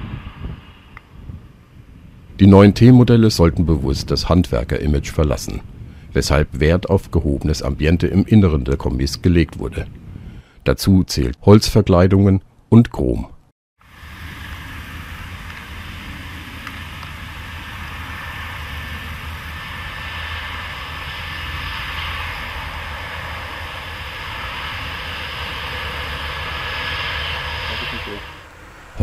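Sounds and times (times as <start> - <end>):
car engine running: 13.9 - 29.0.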